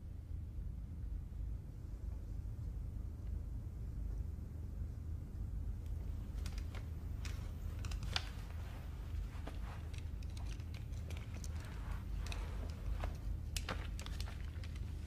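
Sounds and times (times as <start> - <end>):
steady low hum: 0.0 - 15.0
small clicks and taps of handled objects: 5.8 - 15.0.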